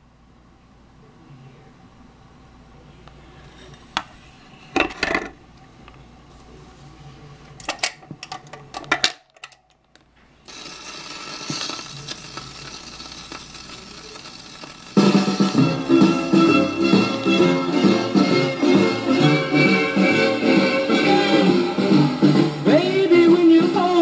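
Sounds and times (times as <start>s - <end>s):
record clicks and clatter: 7.6s - 15.1s
stylus surface hiss: 10.5s - 18.1s.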